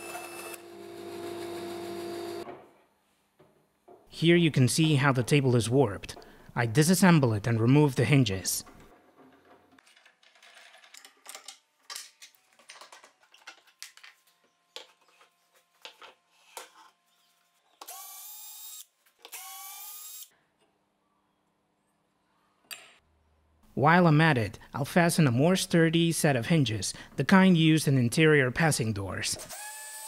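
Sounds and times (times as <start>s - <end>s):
cordless drill whirring: 0.0s - 2.4s, 17.8s - 20.3s, 29.5s - 30.0s.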